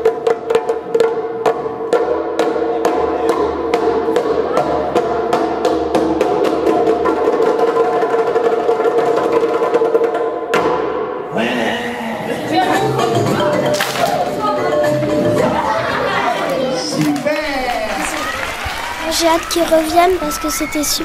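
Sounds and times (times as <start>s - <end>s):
djembe hand slaps: 13.7s - 14.3s.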